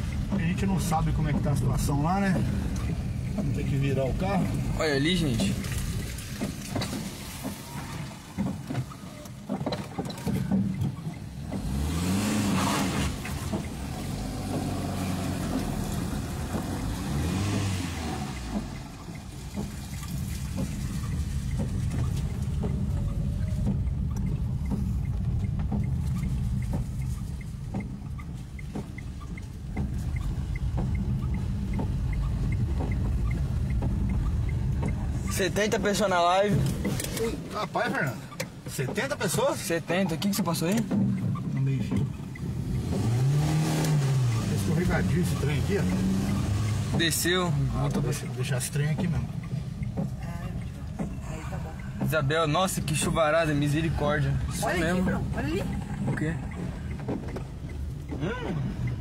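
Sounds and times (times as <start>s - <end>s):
car engine running: 0.0s - 59.0s
rain pattering on car body: 0.0s - 59.0s.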